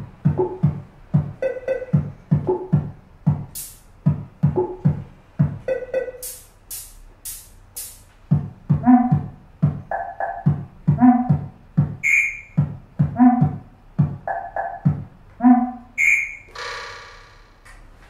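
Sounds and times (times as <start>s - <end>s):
electronic drum beat: 0.0s - 17.8s
short pitched electronic tones: 1.4s - 2.7s, 12.0s - 12.6s, 15.4s - 17.7s.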